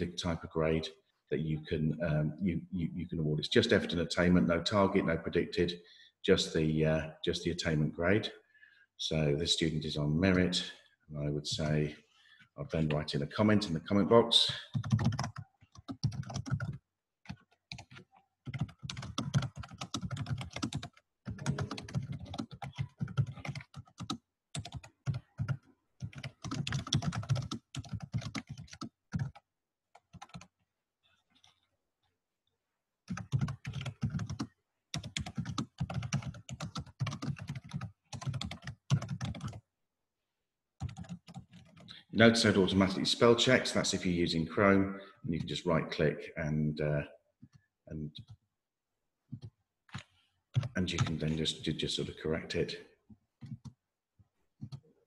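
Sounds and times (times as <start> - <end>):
laptop keyboard typing: 14.7 - 30.6, 33.1 - 39.6, 40.8 - 41.9, 49.3 - 51.2, 53.4 - 53.8, 54.6 - 54.9.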